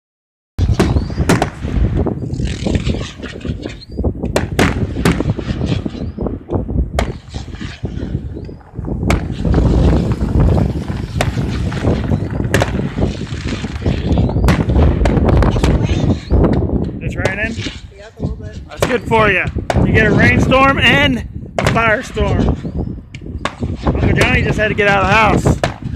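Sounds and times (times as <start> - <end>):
firework crackling: 0.6 - 3.8, 4.4 - 20.6
firework shells bursting: 0.6 - 17.9
low rumble: 4.1 - 24.0.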